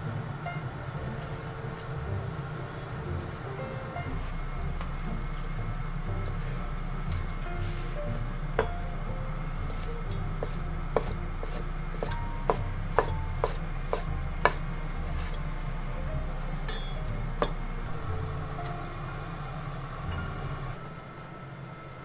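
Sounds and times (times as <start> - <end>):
knife chopping on wooden board: 10.4 - 14.6.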